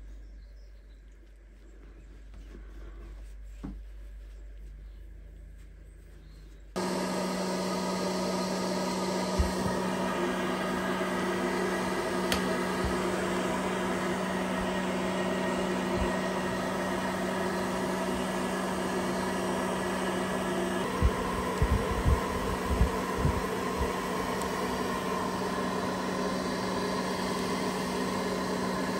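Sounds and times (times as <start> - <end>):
hair dryer blower running: 6.8 - 28.9.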